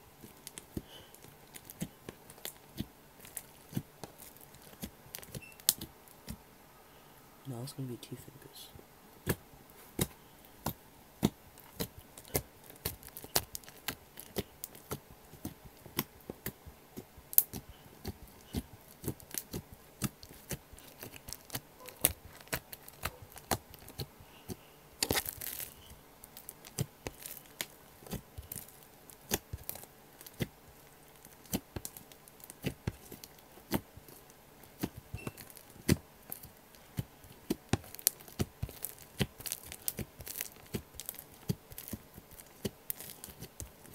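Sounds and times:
slime crackling squelch: 0.0 - 43.9
sticky slime pops and clicks: 26.4 - 30.6, 31.2 - 43.7.

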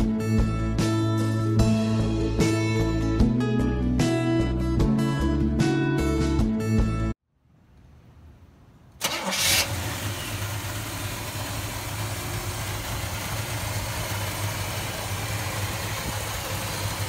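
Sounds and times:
engine starting and idling: 9.0 - 17.0.

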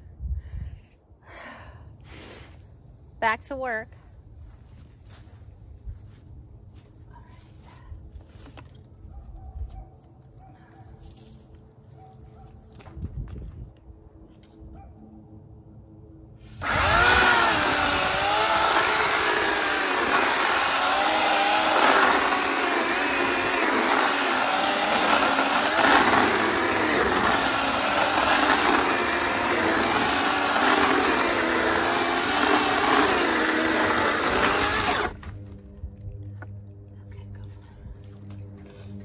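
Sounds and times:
electric chainsaw cutting wood: 16.5 - 35.4.

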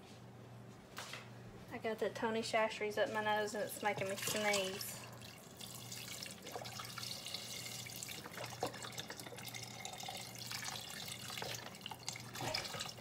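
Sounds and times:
water pouring into a pot: 3.7 - 13.0.

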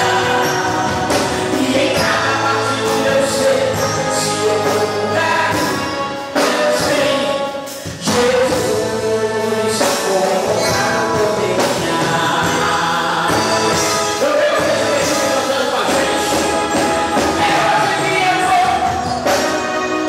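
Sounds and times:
gospel band playing: 0.0 - 20.0
person singing: 0.0 - 20.0.

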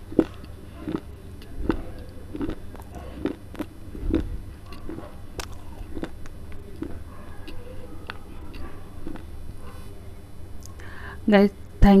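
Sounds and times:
clay being crunched and chewed: 0.1 - 9.3.

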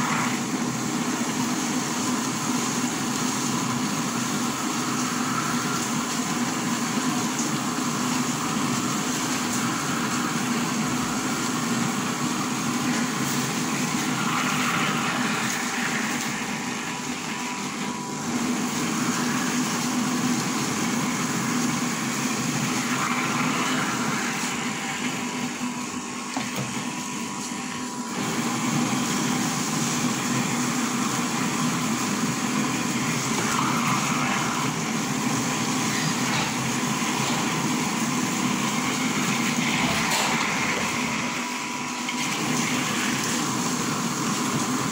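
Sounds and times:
electric grinder motor running: 9.6 - 27.0, 27.6 - 44.8.

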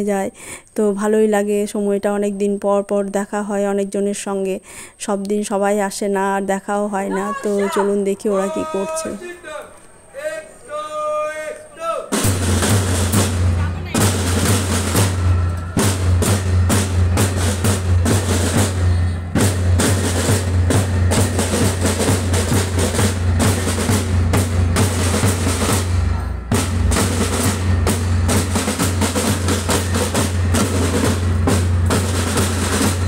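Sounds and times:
snare drums: 12.0 - 33.0
bass drum: 12.2 - 33.0.

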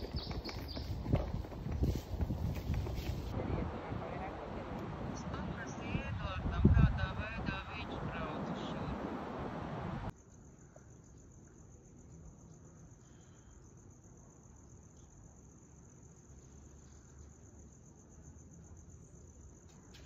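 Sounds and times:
crickets trilling: 0.0 - 6.4, 7.7 - 20.0
wind and surf: 2.3 - 10.1.

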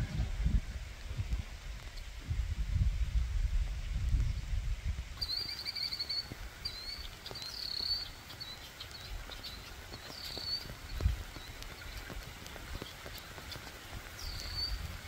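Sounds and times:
rain falling on pond: 0.0 - 15.0
wind rumble on microphone: 0.0 - 15.0
songbird chirping: 5.2 - 15.0.

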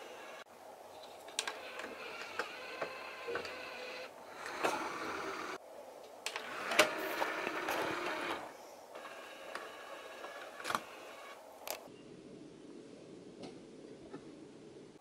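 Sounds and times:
small motors whirring: 1.4 - 5.6, 6.3 - 11.8.

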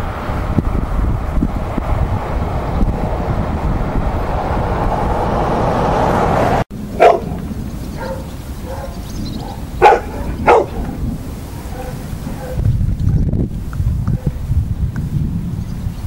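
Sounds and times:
wind rumbling on microphone: 0.0 - 16.0
dog barking: 7.0 - 7.4, 8.0 - 11.0, 11.6 - 12.7, 14.2 - 14.4
dog yipping: 7.0 - 11.0, 11.7 - 12.6.

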